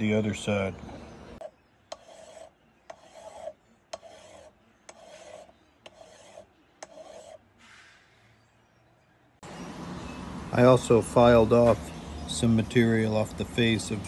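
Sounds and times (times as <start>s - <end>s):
hand file rasping on metal: 1.9s - 7.5s.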